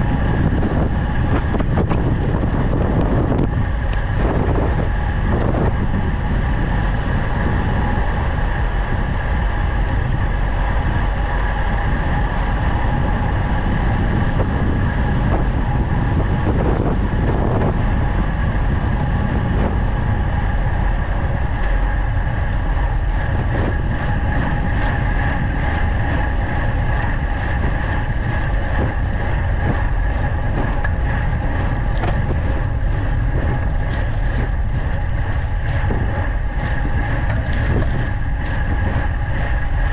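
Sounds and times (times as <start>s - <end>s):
bike tyre noise: 0.0s - 39.9s
wind rushing over microphone: 0.0s - 39.9s.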